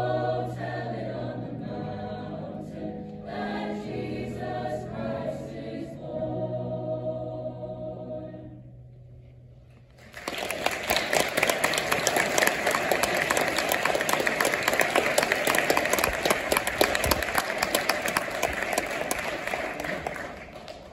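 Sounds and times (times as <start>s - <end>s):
choir holding a chord: 0.0s - 8.9s
audience applauding: 10.0s - 20.9s.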